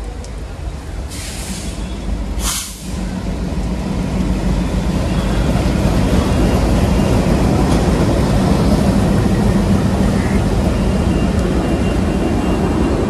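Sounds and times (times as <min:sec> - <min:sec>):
diesel locomotives rumbling past: 0:00.0 - 0:13.0
short hiss: 0:01.1 - 0:01.8, 0:02.4 - 0:03.0.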